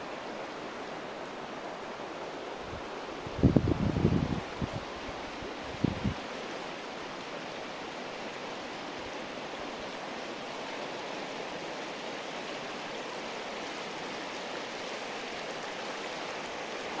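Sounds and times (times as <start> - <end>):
river rushing over stones: 0.0 - 17.0
wind buffeting microphone: 2.6 - 6.3.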